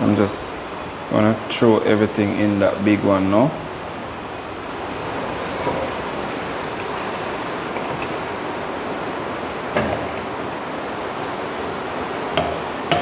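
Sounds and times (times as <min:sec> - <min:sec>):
rushing water-like noise: 0:00.0 - 0:13.0
food and water pouring into pot: 0:05.0 - 0:09.6.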